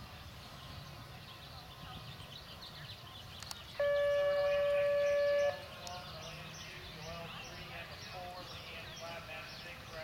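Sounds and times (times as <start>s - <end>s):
long horn blast: 3.8s - 5.7s.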